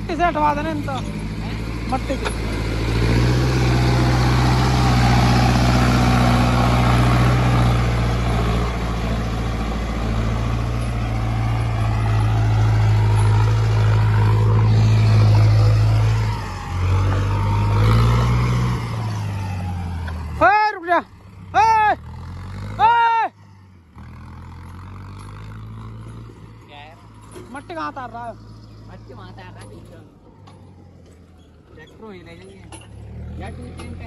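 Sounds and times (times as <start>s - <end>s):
tractor diesel engine revving: 0.0s - 34.0s.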